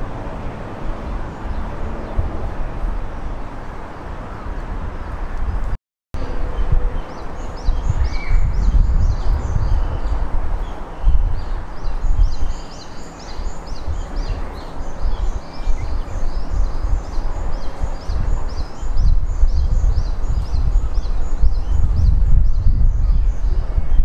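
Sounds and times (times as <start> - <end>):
bird chirping: 6.2 - 24.0.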